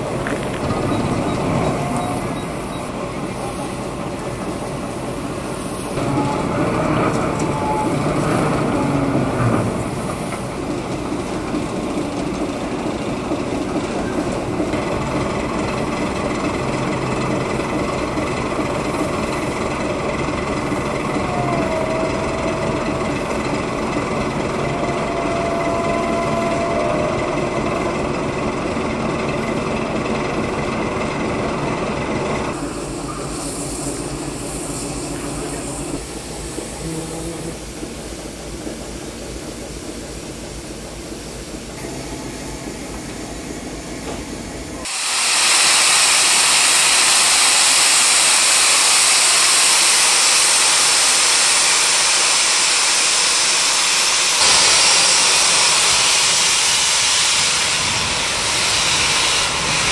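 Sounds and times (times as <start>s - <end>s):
locomotive rumbling: 0.0s - 59.9s
wheel squeals against rail: 0.3s - 3.0s, 6.0s - 9.5s.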